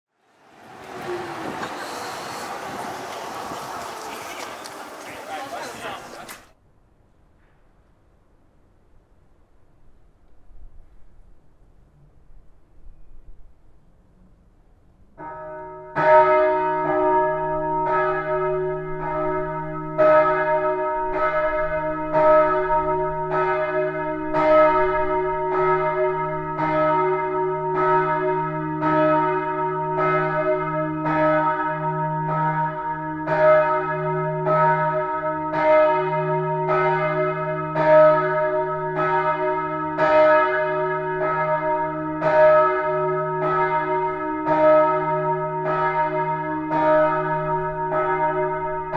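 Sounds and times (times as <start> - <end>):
church bells ringing: 15.2 - 48.9.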